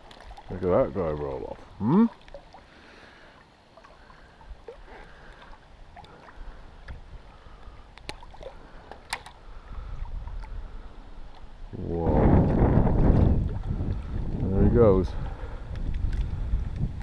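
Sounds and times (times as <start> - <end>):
water lapping against rock: 0.0 - 17.0
wind rumble on microphone: 9.4 - 17.0.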